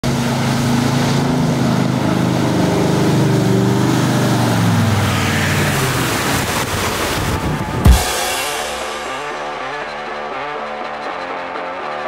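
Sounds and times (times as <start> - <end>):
vehicle engine running under load: 0.0 - 7.8
water splashing: 0.1 - 9.7.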